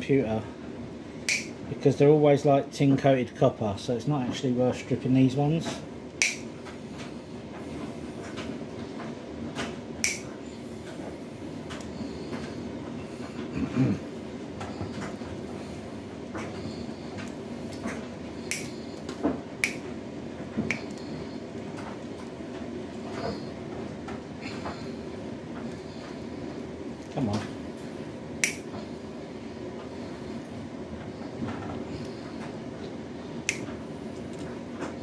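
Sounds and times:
steady low hum: 0.0s - 35.0s
hand cutters snipping wires: 1.3s - 1.5s, 10.0s - 10.2s, 18.5s - 18.7s, 28.4s - 28.6s.

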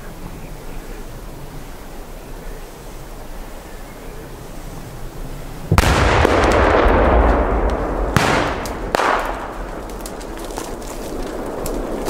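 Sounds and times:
firecracker cracks: 5.7s - 12.0s
firework bangs: 5.7s - 12.0s
rumbling echo: 5.7s - 12.0s.

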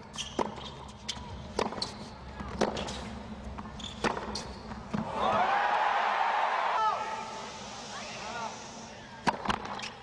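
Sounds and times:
tennis ball struck by rackets: 4.0s - 5.0s
crowd cheering: 5.0s - 8.6s.

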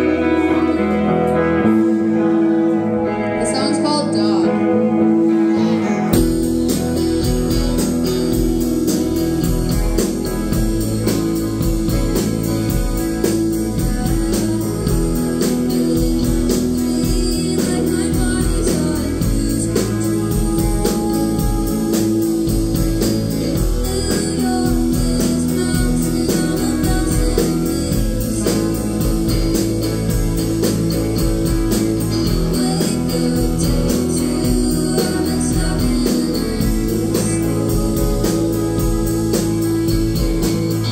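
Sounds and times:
rock band playing: 0.0s - 40.9s
woman singing: 5.8s - 40.9s.

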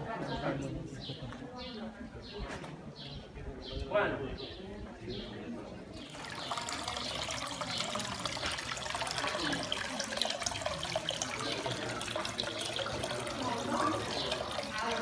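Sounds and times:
water trickling into fountain trough: 5.3s - 15.0s.

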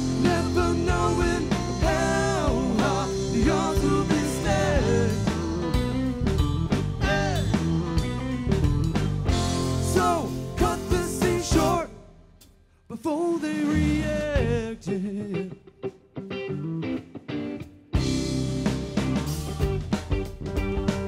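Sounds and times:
bending guitar lead melody: 0.0s - 11.8s, 14.9s - 21.0s
rock band playing: 0.0s - 11.9s, 16.3s - 21.0s.

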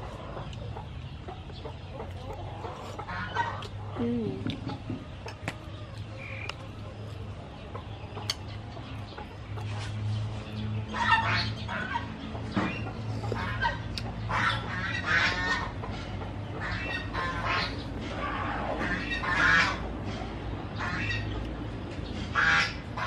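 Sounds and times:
fowl squawking and clucking: 10.9s - 20.0s, 20.7s - 21.4s, 22.3s - 23.0s.

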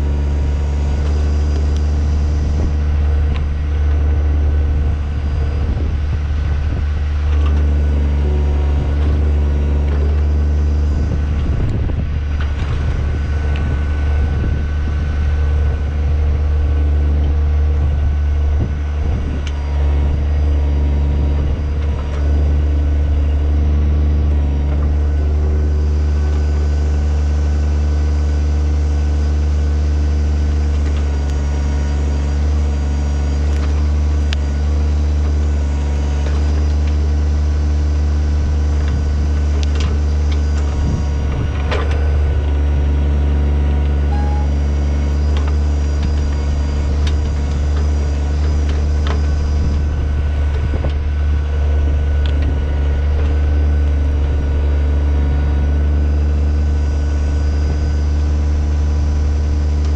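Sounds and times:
diesel tractor engine running: 0.0s - 59.9s
backhoe knocks and crunches: 30.3s - 55.4s.

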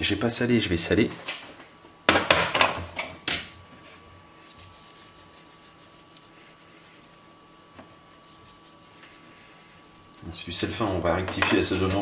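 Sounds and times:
thin steady whine: 3.0s - 12.0s
salt sprinkling rustle: 4.4s - 7.4s, 8.1s - 10.2s.

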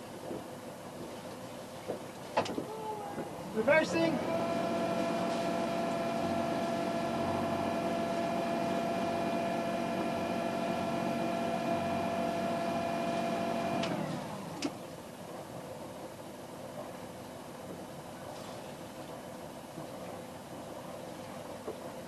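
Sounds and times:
diesel engine running: 4.1s - 14.6s.

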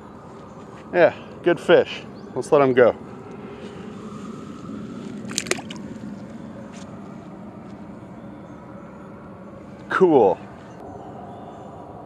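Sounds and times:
steady low hum: 0.0s - 12.0s
fish splashing in water: 5.2s - 6.0s.

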